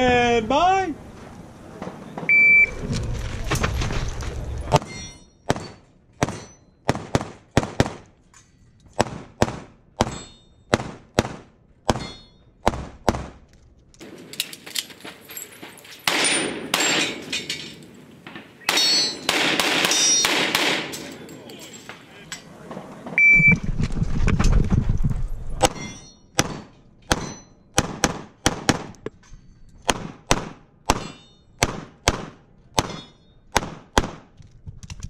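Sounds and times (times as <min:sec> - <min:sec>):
rapid pistol shots: 0:05.5 - 0:08.0, 0:18.7 - 0:20.9, 0:26.4 - 0:28.9, 0:29.9 - 0:31.0, 0:31.6 - 0:34.3.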